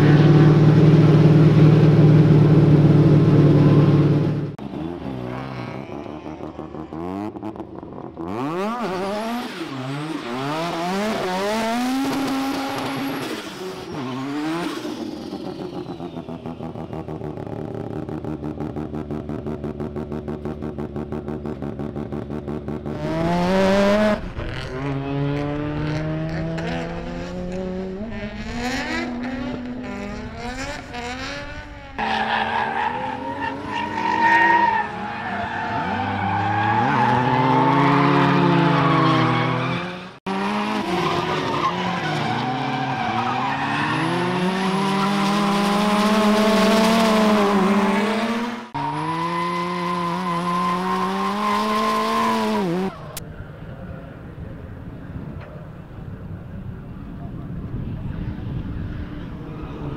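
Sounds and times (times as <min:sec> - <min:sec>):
rotary engine revving hard: 0:00.0 - 0:53.2
tyre squeal and skidding: 0:12.5 - 0:16.5, 0:32.0 - 0:40.1, 0:40.8 - 0:45.7, 0:48.7 - 0:53.2.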